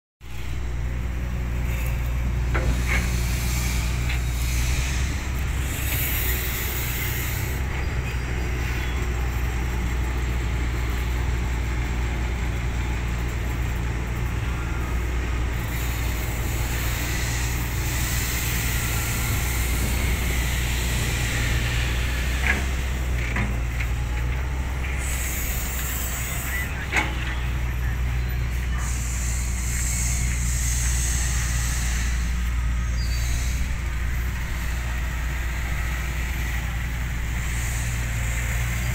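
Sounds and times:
excavator diesel engine running: 0:00.2 - 0:38.9
hydraulic hiss: 0:01.2 - 0:08.8, 0:15.5 - 0:38.9.

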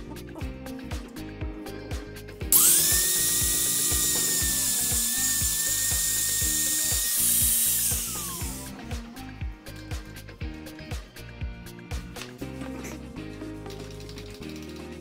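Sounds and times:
angle grinder grinding steel chain: 0:02.5 - 0:08.7.

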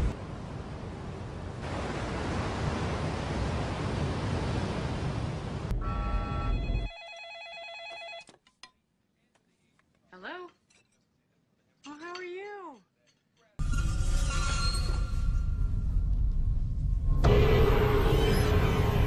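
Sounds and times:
wind and sea rushing: 0:00.0 - 0:05.7
cordless phone ringing: 0:05.8 - 0:08.3.

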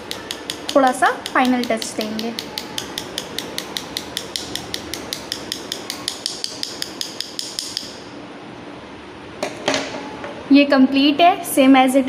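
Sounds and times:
paintbrush tapping pen barrel: 0:00.0 - 0:07.9.

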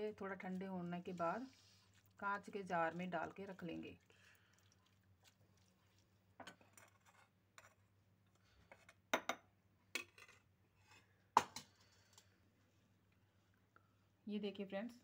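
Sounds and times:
metal spoon scraping a pan: 0:06.4 - 0:07.8.

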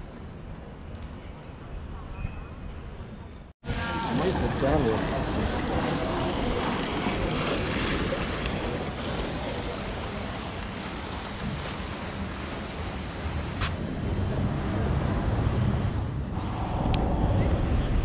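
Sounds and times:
fountain water splashing: 0:03.7 - 0:15.9.

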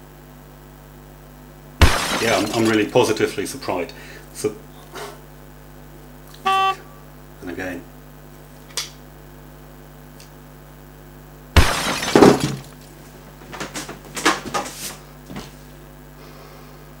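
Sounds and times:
tripod crashing onto hard floor: 0:11.6 - 0:12.7.

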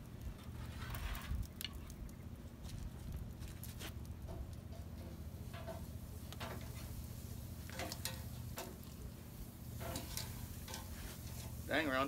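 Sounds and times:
steady low hum: 0:00.0 - 0:12.0
metal tongs clinking on grill grate: 0:07.7 - 0:08.8, 0:09.8 - 0:11.6.

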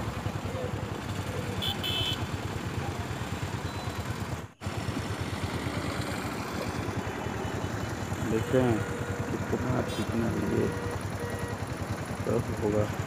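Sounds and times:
motorcycle engine idling: 0:00.0 - 0:13.0
short high beeps: 0:10.5 - 0:11.6.

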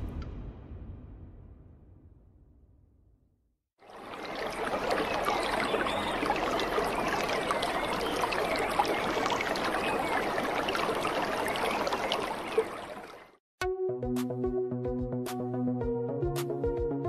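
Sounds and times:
running bubbling water: 0:03.8 - 0:13.4.

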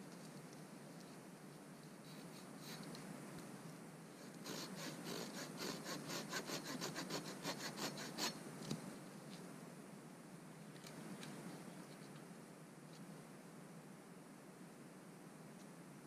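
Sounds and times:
hand saw cutting wood: 0:04.2 - 0:08.4.

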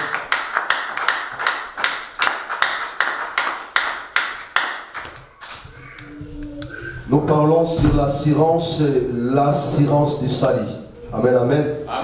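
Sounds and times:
hand clapping in steady rhythm: 0:00.0 - 0:06.7.

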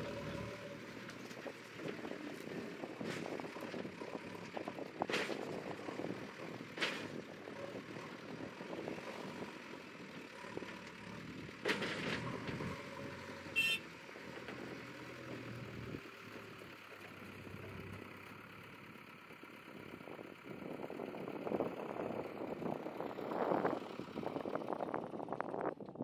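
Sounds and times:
diesel engine running: 0:00.0 - 0:25.9
short beep: 0:13.6 - 0:13.8.

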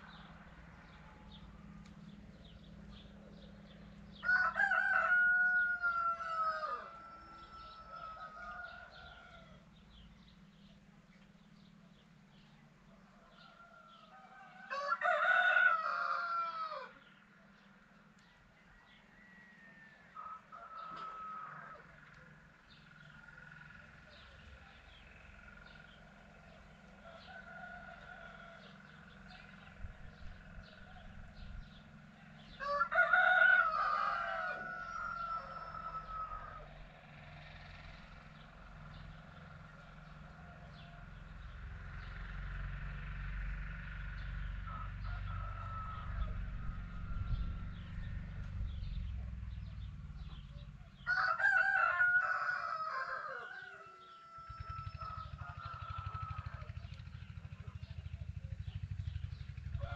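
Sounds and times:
rooster crowing: 0:04.1 - 0:09.7, 0:13.2 - 0:17.1, 0:18.6 - 0:22.1, 0:27.0 - 0:29.6, 0:32.4 - 0:36.9, 0:44.6 - 0:48.5, 0:51.0 - 0:56.8, 0:59.7 - 0:59.9
low rumble: 0:41.3 - 0:51.0.

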